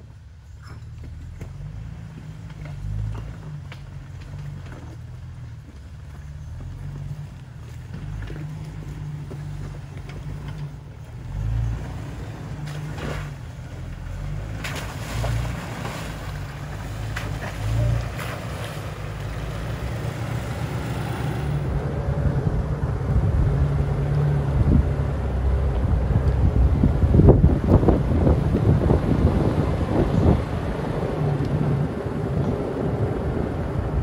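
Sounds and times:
engine running at low revs: 0:00.0 - 0:34.0
wind on microphone: 0:21.6 - 0:34.0.

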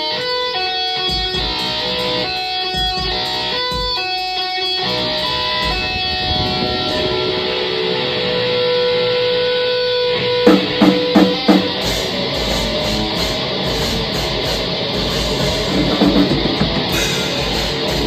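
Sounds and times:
distorted electric guitar: 0:00.0 - 0:18.0
band accented hits: 0:10.4 - 0:18.0
fast dense drumming: 0:10.4 - 0:18.0.

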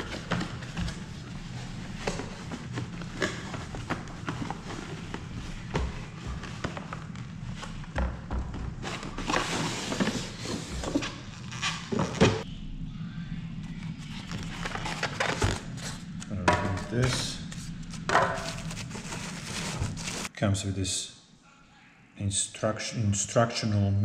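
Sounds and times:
cardboard and packing rustling: 0:00.0 - 0:08.0, 0:08.7 - 0:12.4, 0:14.0 - 0:20.3.

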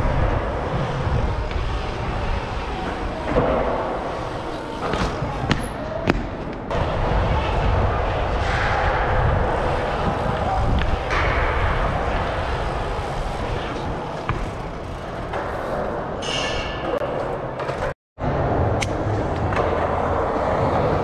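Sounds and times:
wind noise on microphone: 0:00.0 - 0:03.3, 0:06.7 - 0:14.6
bike tyres rolling on concrete: 0:00.0 - 0:18.0.

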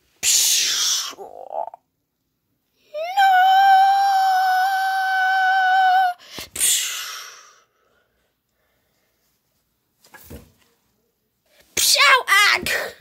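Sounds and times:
child screaming: 0:02.9 - 0:06.2.

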